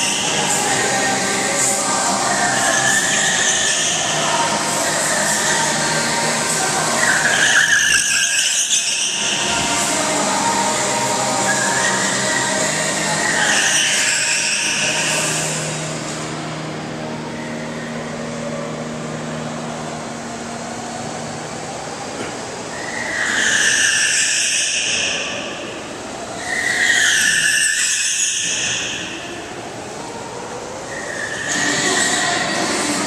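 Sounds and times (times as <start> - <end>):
go-kart motor droning: 0.0 - 33.0
go-kart tyres squealing: 0.0 - 33.0.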